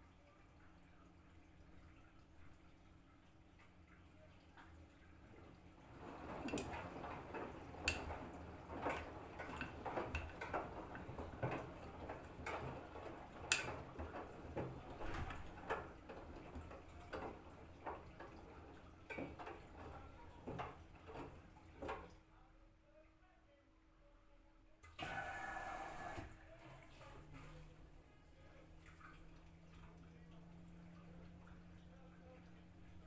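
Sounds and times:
washing machine tumbling: 0.0 - 22.3, 24.9 - 33.0
wet laundry swishing: 5.2 - 22.1
knocks and clicks in drum: 5.8 - 22.1.

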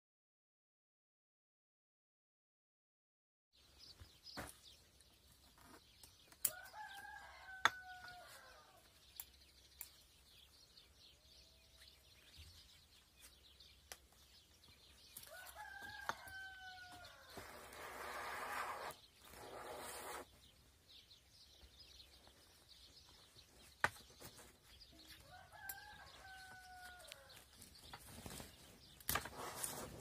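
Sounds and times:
rooster crowing: 6.5 - 8.8, 15.3 - 17.5, 25.2 - 27.3.

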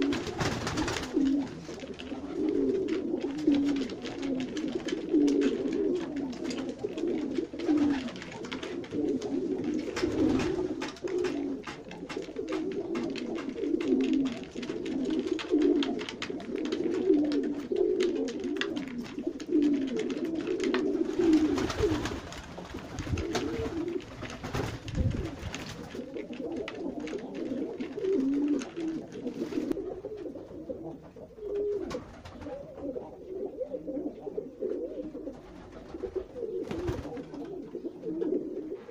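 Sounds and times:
beaks pecking in wooden trough: 0.0 - 29.8
pigeons cooing: 0.0 - 38.9.

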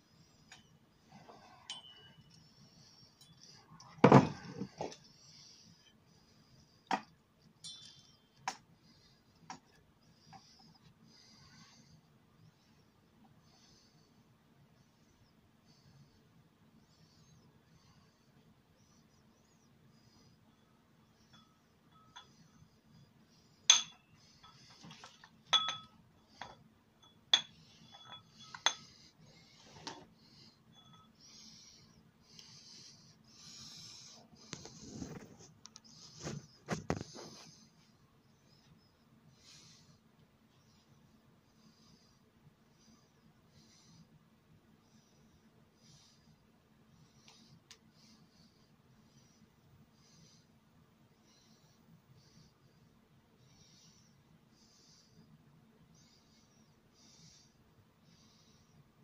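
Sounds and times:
metal tube clinking and knocking: 1.6 - 2.3, 6.9 - 8.6, 23.7 - 29.0.

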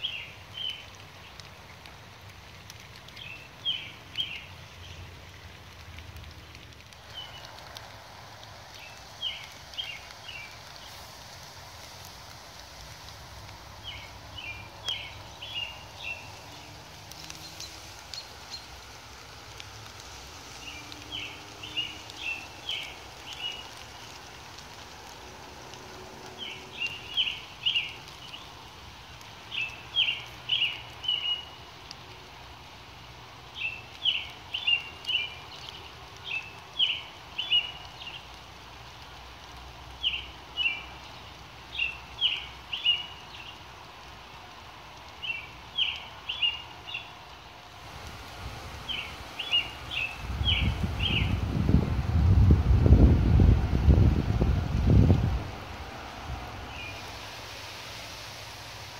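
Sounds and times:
songbird singing: 0.0 - 1.8, 3.0 - 5.5, 6.4 - 7.6, 8.7 - 11.1, 13.7 - 19.0, 19.6 - 24.2, 26.3 - 28.7, 29.4 - 31.7, 33.5 - 38.4, 39.9 - 43.7, 45.1 - 47.3, 48.5 - 51.9, 56.5 - 57.2
light rain on leaves: 0.0 - 58.9.

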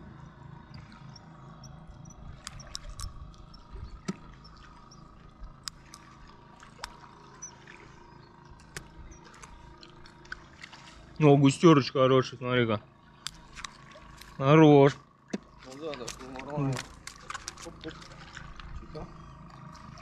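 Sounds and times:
faint steady hum: 0.0 - 20.0
sharp clicks: 0.7 - 7.6, 8.6 - 10.5, 13.2 - 14.4
light water splashing: 0.7 - 11.8, 13.1 - 20.0.

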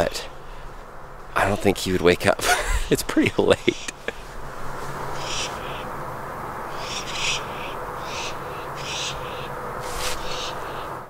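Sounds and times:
low background hum: 0.0 - 11.0
owls screeching: 4.9 - 6.0, 6.6 - 11.0.

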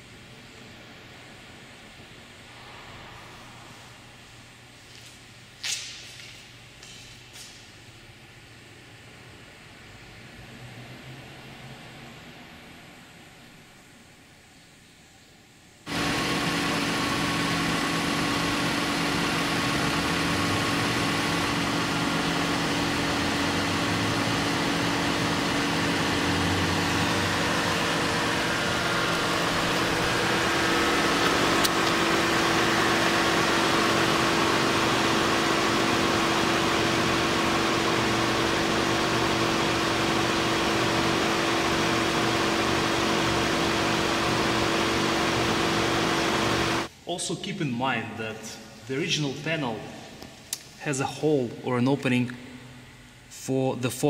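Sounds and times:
car engine idling: 15.9 - 46.9.

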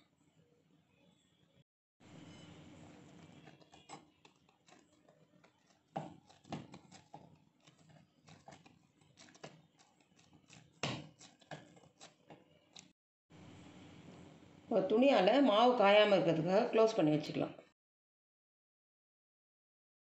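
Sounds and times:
dough squishing and slapping: 2.8 - 12.9.

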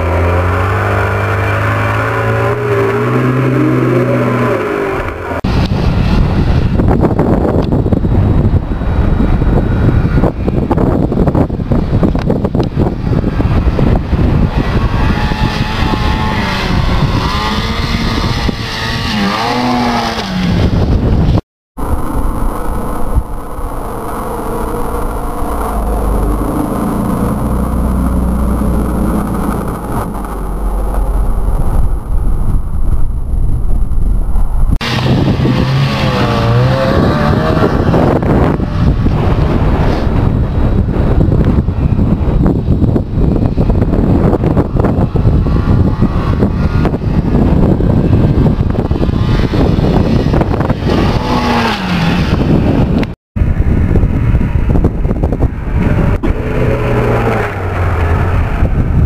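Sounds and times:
snowmobile engine revving: 0.0 - 6.2, 13.2 - 20.8, 21.8 - 31.7, 34.8 - 41.3, 43.3 - 53.0, 55.6 - 59.0
wind rumble on microphone: 0.0 - 59.0.

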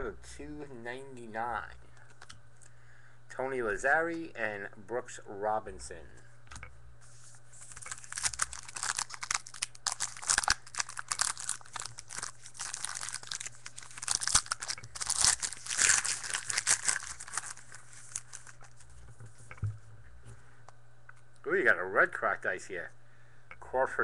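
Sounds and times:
wrapper tearing and crinkling: 7.6 - 18.9.

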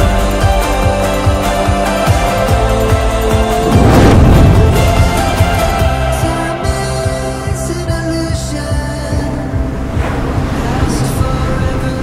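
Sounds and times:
background music with steady beat: 0.0 - 12.0
noisy whooshing swell: 3.2 - 6.7.

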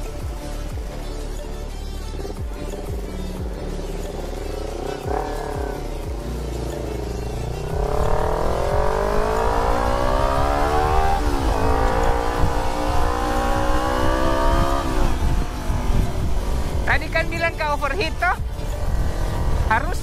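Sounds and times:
motorcycle engine accelerating: 0.0 - 20.0.

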